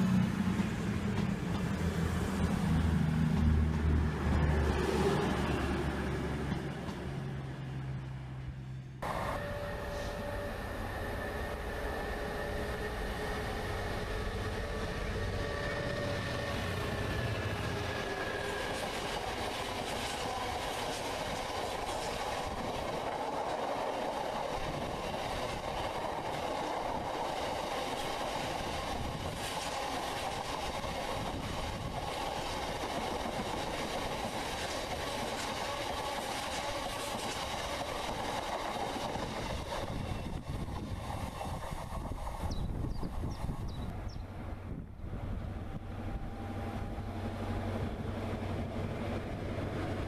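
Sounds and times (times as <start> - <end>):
freight train wagons rolling past: 0.0 - 50.0.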